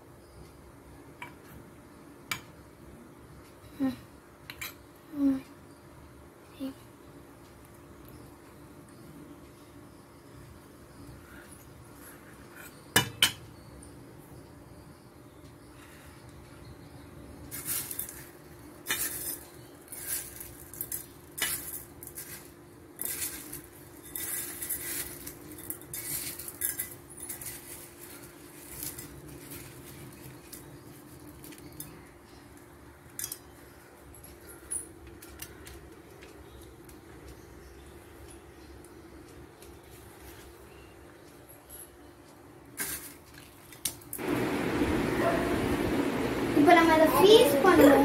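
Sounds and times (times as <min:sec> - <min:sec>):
faint steady hum: 0:00.0 - 0:48.0.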